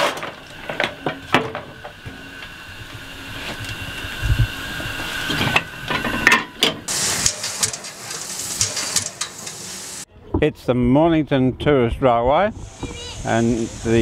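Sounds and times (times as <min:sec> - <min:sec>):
bright hiss of venting steam: 0:01.7 - 0:10.1, 0:12.5 - 0:14.0
steam hissing: 0:01.7 - 0:10.1, 0:12.6 - 0:14.0
metal clanks: 0:05.2 - 0:10.0.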